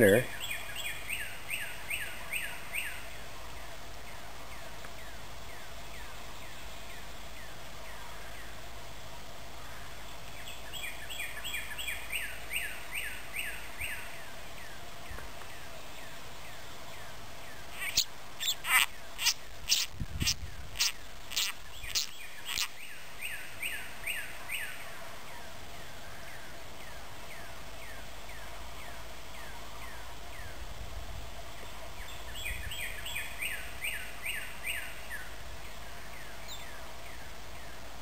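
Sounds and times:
faint steady hum: 0:00.0 - 0:38.0.

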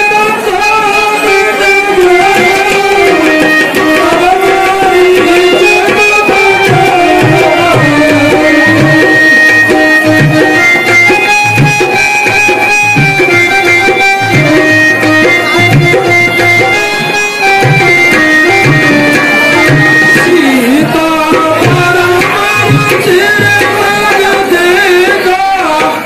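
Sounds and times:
sustained melody of held notes: 0:00.0 - 0:24.5
tabla drumming: 0:00.0 - 0:26.0.

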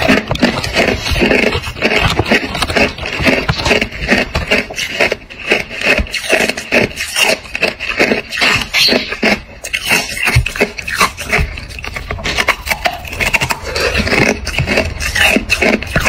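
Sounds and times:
ice being chewed and crunched: 0:00.0 - 0:16.0.

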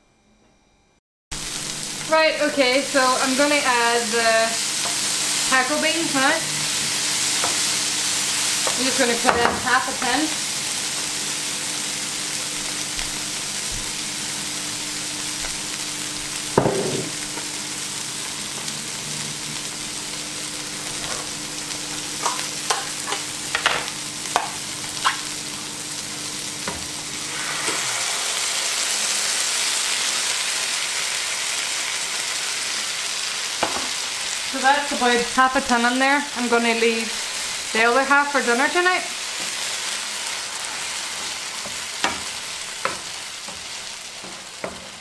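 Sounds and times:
vegetables sizzling in frying pan: 0:01.4 - 0:45.0
knock: 0:16.6 - 0:17.1.

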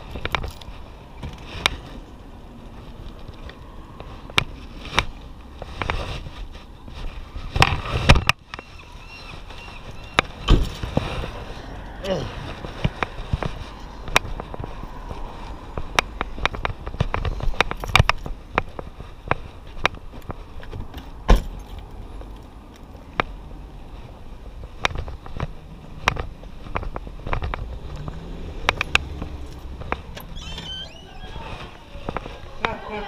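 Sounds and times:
footsteps: 0:00.0 - 0:33.0
low street traffic: 0:00.0 - 0:33.0.

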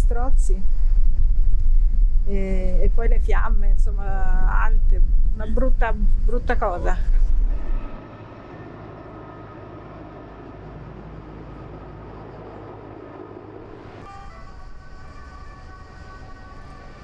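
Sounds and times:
steady whining tones: 0:00.0 - 0:17.0
helicopter engine and rotor drone: 0:07.3 - 0:16.8.

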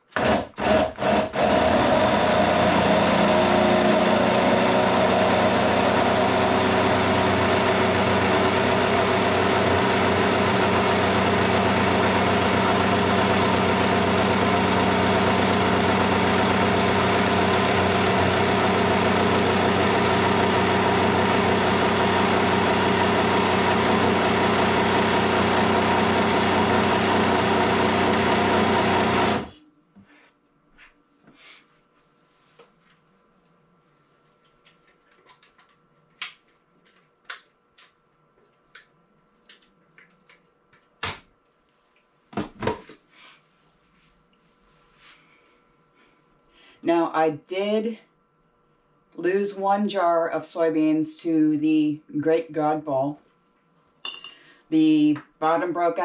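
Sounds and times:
blender grinding: 0:00.0 - 0:29.6.

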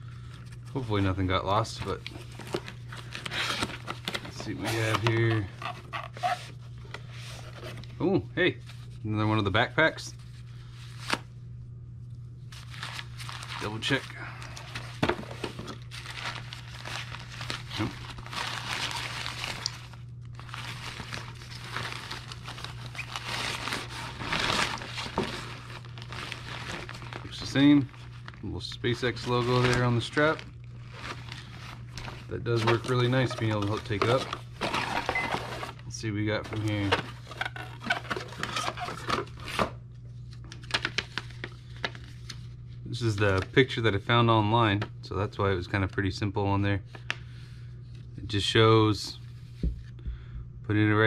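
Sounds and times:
nylon fabric rustling and crinkling: 0:15.8 - 0:35.8.

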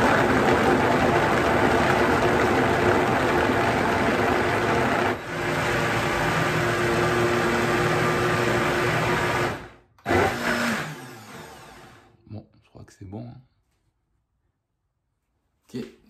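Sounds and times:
blender running: 0:00.0 - 0:12.2.

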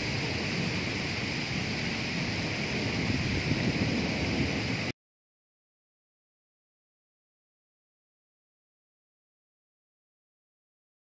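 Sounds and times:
heavy rain pouring: 0:00.0 - 0:05.0
wind rumbling on microphone: 0:00.0 - 0:05.0.

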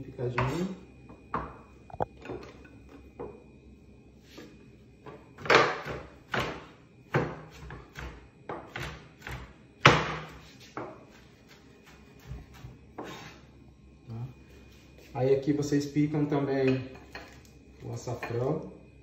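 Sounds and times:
knife chopping on plastic board: 0:05.4 - 0:11.0.

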